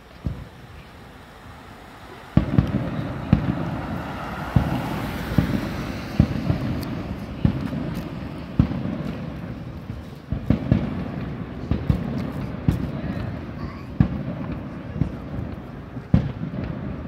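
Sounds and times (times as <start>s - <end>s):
continuous fireworks noise: 0.0s - 17.0s
fireworks bangs: 0.0s - 17.0s.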